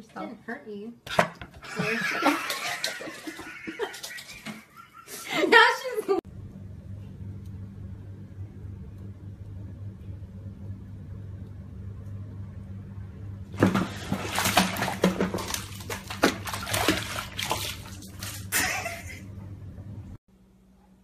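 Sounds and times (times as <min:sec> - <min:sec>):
steady low hum: 0:06.3 - 0:21.0
cat splashing in water: 0:13.6 - 0:19.0.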